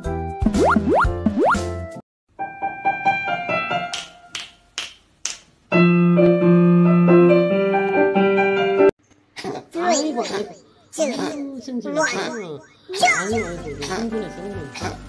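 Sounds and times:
keyboard intro music: 0:00.2 - 0:02.0.

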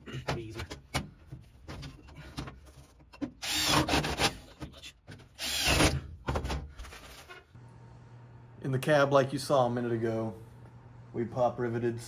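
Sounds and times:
power drill boring through sheet metal: 0:03.4 - 0:04.3, 0:05.4 - 0:06.0.

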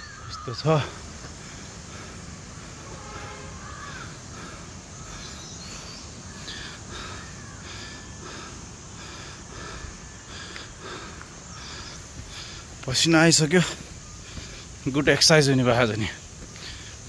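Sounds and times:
birds calling: 0:00.0 - 0:17.0.

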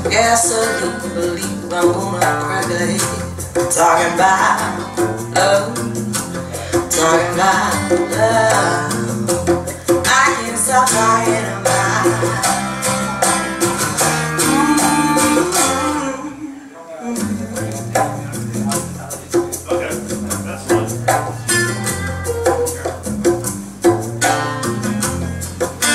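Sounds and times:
song over loudspeakers: 0:00.0 - 0:18.8.

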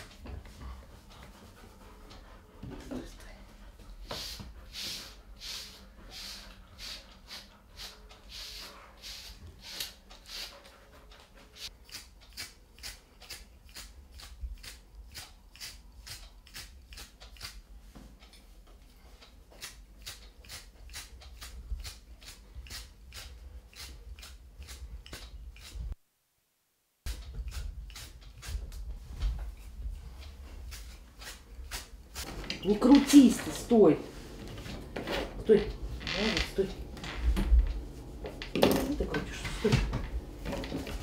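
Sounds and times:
trimming tool scraping dog coat: 0:19.6 - 0:25.9.

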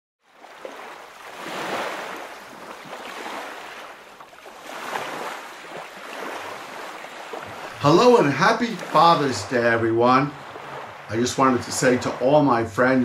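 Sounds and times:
ocean waves washing in: 0:00.2 - 0:13.0.

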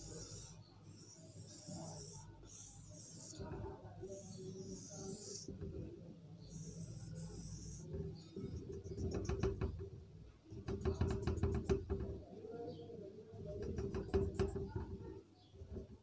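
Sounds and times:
marker squeaking on whiteboard: 0:00.0 - 0:09.9, 0:13.4 - 0:16.0.

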